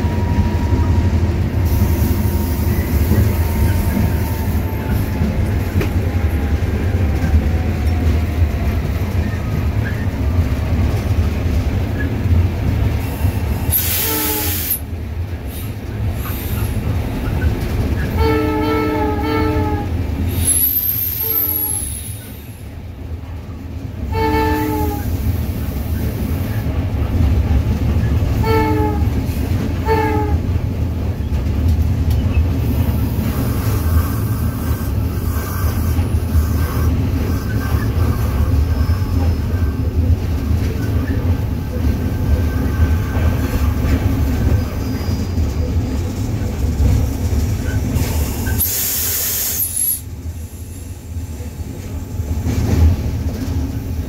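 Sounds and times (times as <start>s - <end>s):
train horn blasts: 0.0s - 1.1s, 1.7s - 4.9s, 13.8s - 14.8s, 18.1s - 20.0s, 21.3s - 22.0s, 24.1s - 25.2s, 28.3s - 29.2s, 29.8s - 30.5s
diesel locomotive rumble: 0.0s - 54.0s.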